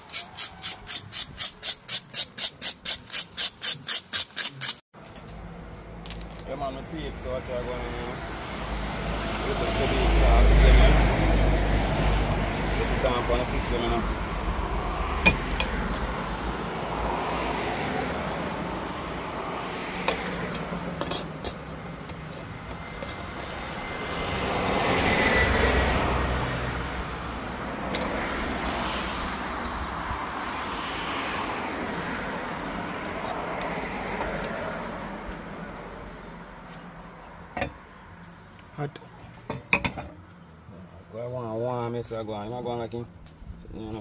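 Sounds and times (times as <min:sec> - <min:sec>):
road traffic noise: 0:00.0 - 0:44.0
vehicle passing: 0:05.3 - 0:39.5.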